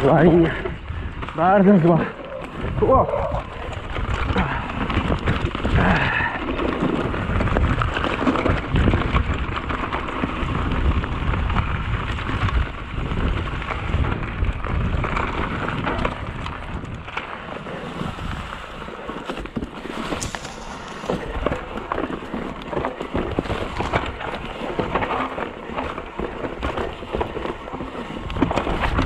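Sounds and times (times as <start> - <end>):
bike chain and frame rattling: 0.0 - 17.4
bike tyres crunching on dirt: 0.0 - 29.0
wind on microphone: 0.0 - 29.0.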